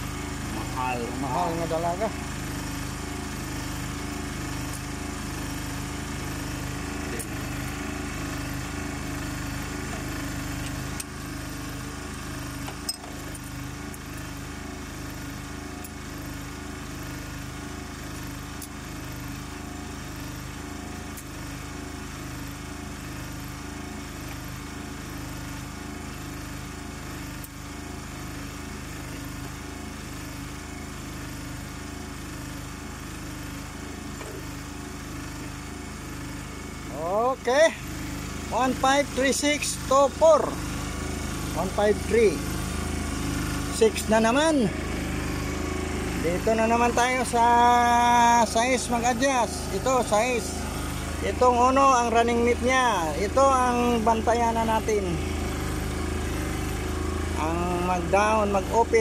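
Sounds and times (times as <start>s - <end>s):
pulsing engine drone: 0.0s - 59.0s.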